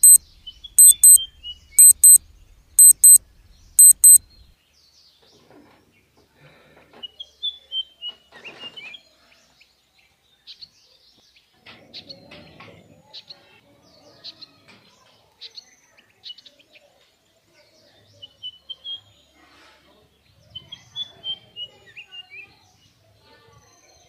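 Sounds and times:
small birds chirping: 0:00.0 - 0:02.2, 0:02.8 - 0:03.2, 0:03.8 - 0:04.2.

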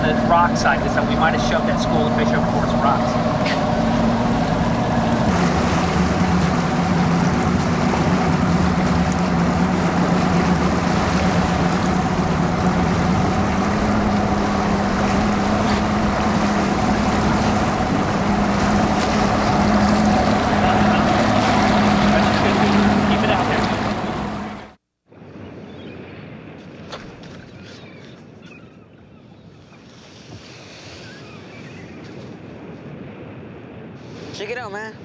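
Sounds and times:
outboard motor running: 0:00.0 - 0:24.8
water rushing: 0:00.0 - 0:24.8.

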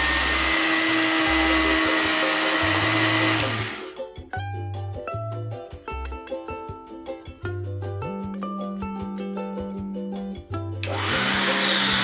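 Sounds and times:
electric mixer grinder whirring: 0:00.0 - 0:03.9, 0:10.8 - 0:12.0
background music with plucked strings: 0:00.0 - 0:12.0.

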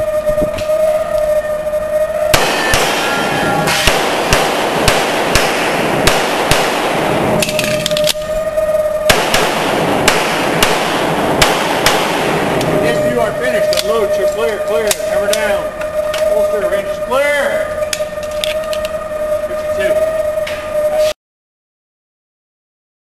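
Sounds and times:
handgun shots indoors: 0:02.3 - 0:08.2, 0:09.1 - 0:12.7.

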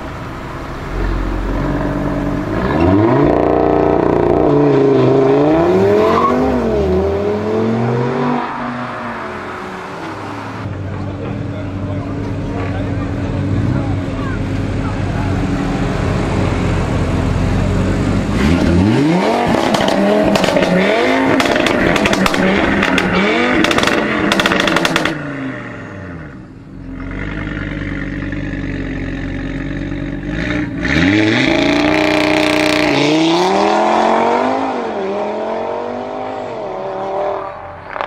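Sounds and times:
car engine revving: 0:00.0 - 0:38.0
exhaust crackles: 0:10.5 - 0:33.2.

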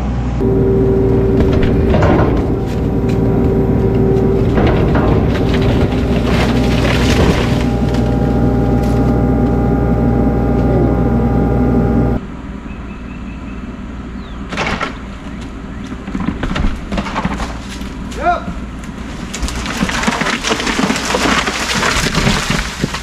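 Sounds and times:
excavator engine running hard: 0:00.0 - 0:16.9
wood cracking: 0:00.4 - 0:11.0, 0:15.8 - 0:23.0.

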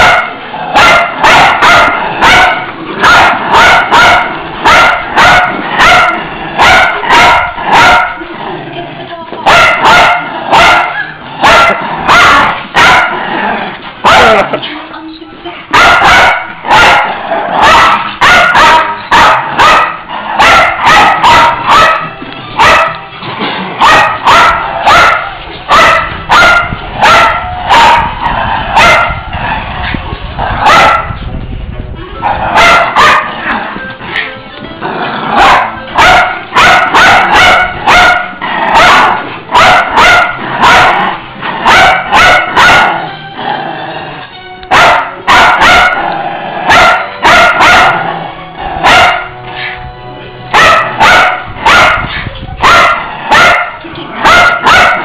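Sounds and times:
small dogs barking sharply: 0:00.0 - 0:08.2, 0:09.4 - 0:13.2, 0:14.0 - 0:14.6, 0:15.7 - 0:23.0, 0:23.8 - 0:29.3, 0:30.6 - 0:31.2, 0:32.2 - 0:33.5, 0:35.3 - 0:43.1, 0:44.7 - 0:48.2, 0:48.8 - 0:49.8, 0:50.5 - 0:55.0.

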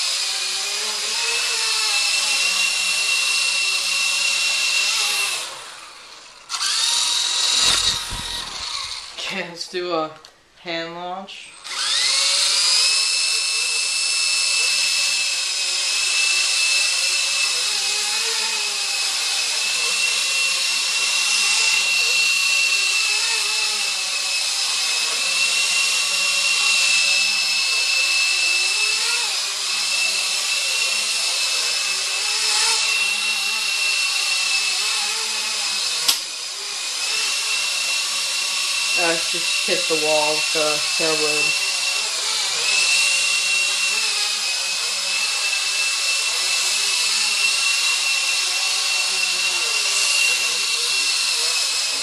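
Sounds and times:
toy helicopter rotor whining: 0:00.0 - 0:09.2, 0:11.4 - 0:52.0
helicopter striking wall: 0:07.3 - 0:09.2.

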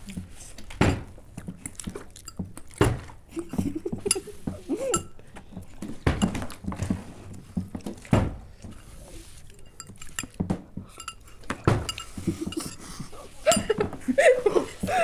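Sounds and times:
cutlery clinking against glass bowls: 0:02.2 - 0:05.3, 0:05.9 - 0:06.7, 0:08.6 - 0:14.0.

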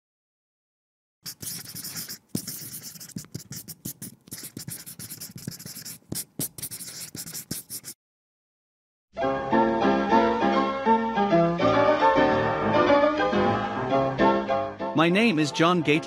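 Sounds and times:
pen scratching while writing: 0:01.2 - 0:08.0.

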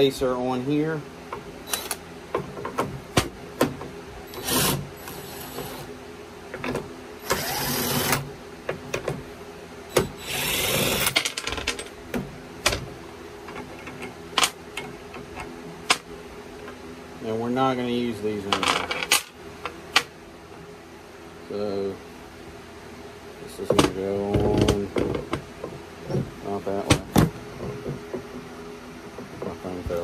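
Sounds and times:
power driver spinning nuts: 0:04.3 - 0:05.9, 0:07.2 - 0:08.3, 0:09.9 - 0:11.2.

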